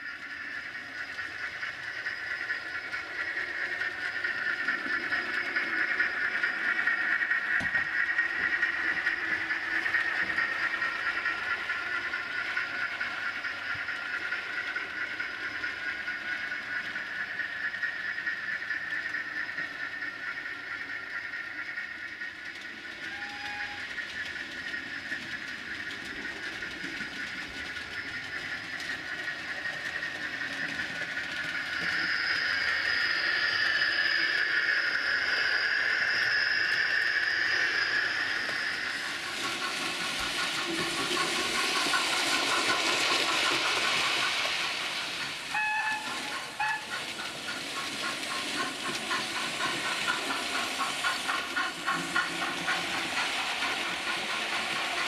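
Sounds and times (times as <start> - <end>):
rapid locomotive chuffing: 0.0 - 55.0
steam hiss: 0.0 - 55.0
locomotive whistle: 23.0 - 24.2, 45.4 - 47.2.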